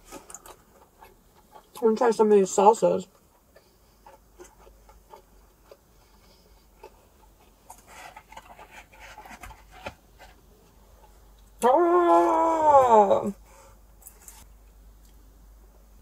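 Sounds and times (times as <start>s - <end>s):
crunchy chewing: 0.0s - 2.0s, 3.1s - 11.6s.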